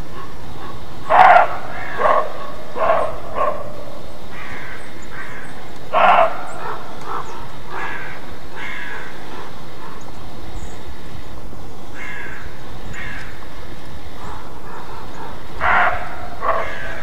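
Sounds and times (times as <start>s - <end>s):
deer barking: 0.1s - 10.0s, 14.2s - 17.0s.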